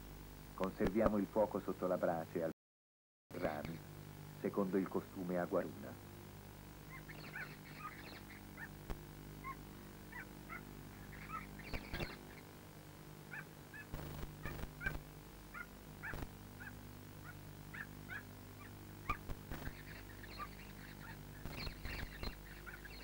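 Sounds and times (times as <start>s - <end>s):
steady low hum: 0.0s - 2.5s, 3.3s - 23.0s
high animal chirps: 6.9s - 8.7s, 9.4s - 12.4s, 15.6s - 23.0s.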